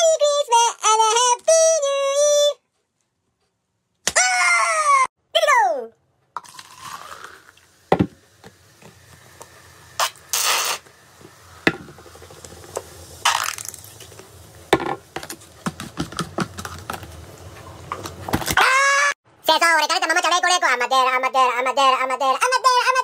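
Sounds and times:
bottle hissing: 6.4 - 15.2
soda pouring into plastic cup: 6.4 - 15.3
plastic bottles knocking: 14.7 - 17.1.

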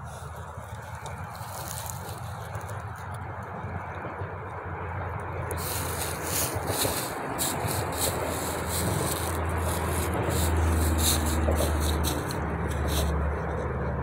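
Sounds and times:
road traffic rumble: 0.0 - 14.0
fabric and cord rustling: 0.6 - 3.2, 5.5 - 13.2.

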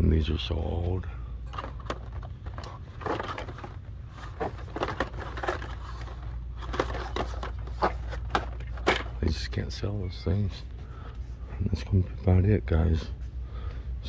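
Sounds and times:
plastic packages crinkling and rustling: 1.5 - 9.4.

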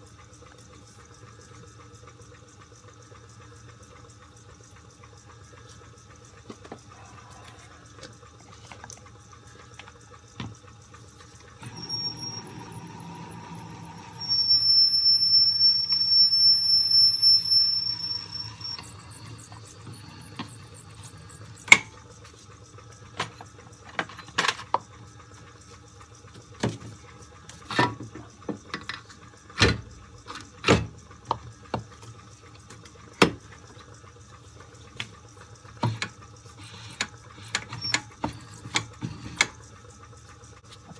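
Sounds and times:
reamer squealing: 11.6 - 21.8.

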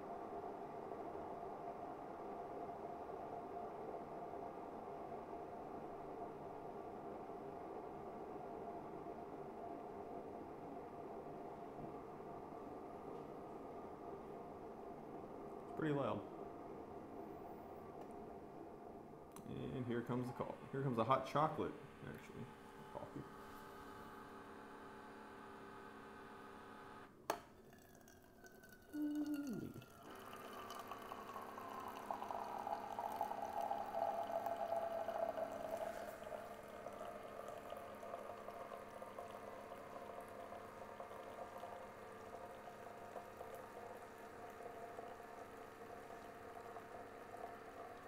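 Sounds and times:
brewer humming: 19.3 - 48.0
hot liquid splashing into mug: 27.3 - 48.0.

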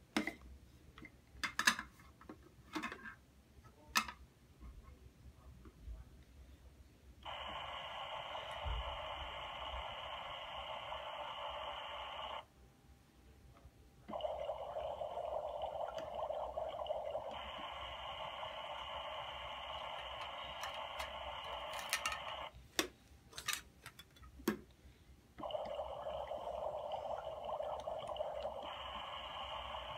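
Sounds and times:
toy stove electronic hiss: 7.2 - 12.5, 14.1 - 22.5, 25.4 - 29.9.

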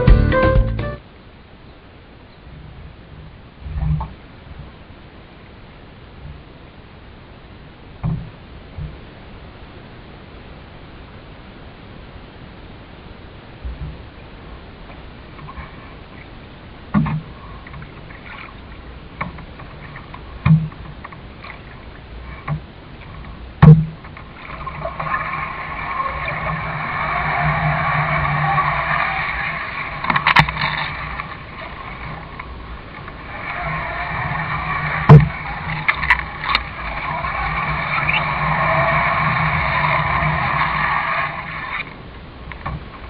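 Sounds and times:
water rushing: 21.2 - 43.0
knocks on canoe: 23.6 - 24.0.

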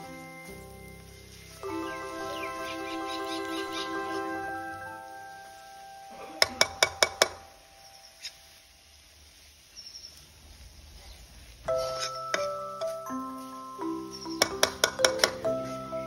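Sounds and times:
background music: 0.0 - 8.0, 11.7 - 16.0.

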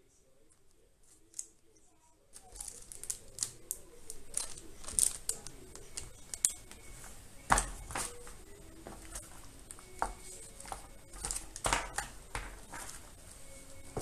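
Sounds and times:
plastic bags crinkling: 2.4 - 6.8.

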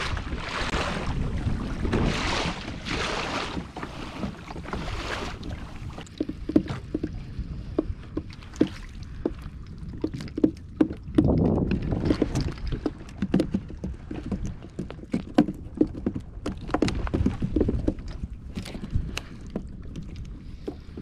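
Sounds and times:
water rushing along kayak hull: 0.0 - 21.0
sharp irregular clicks and knocks: 6.0 - 21.0.

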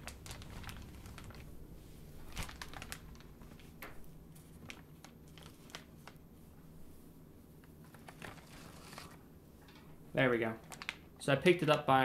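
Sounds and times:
plastic bag crinkling: 0.0 - 1.6, 2.2 - 6.2, 7.7 - 9.9, 10.5 - 11.1.

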